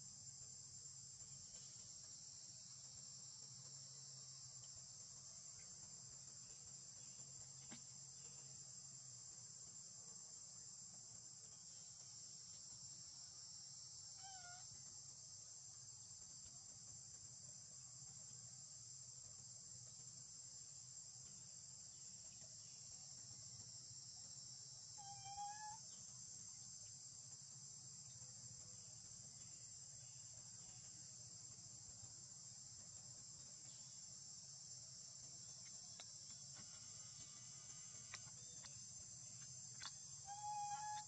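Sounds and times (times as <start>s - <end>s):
high-pitched insect chorus: 0.0s - 41.0s
short wavering call: 40.3s - 41.0s.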